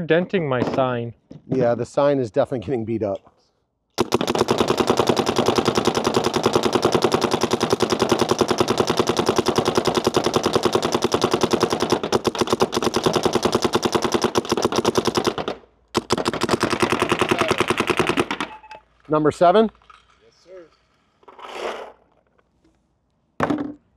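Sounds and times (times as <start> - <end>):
paintball marker firing: 4.0 - 18.5.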